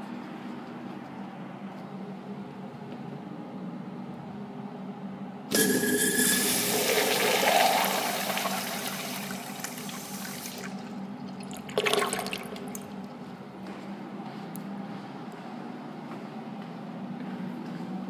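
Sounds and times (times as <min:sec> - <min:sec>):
urinal flushing: 0:05.5 - 0:13.1.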